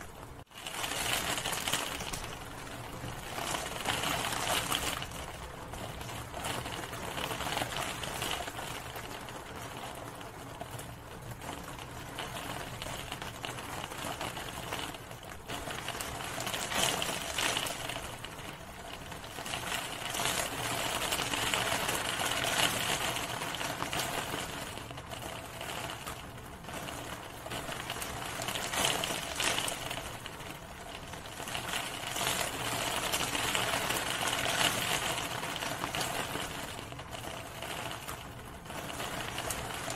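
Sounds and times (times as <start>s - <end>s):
rain on hard surface: 0.0s - 39.9s.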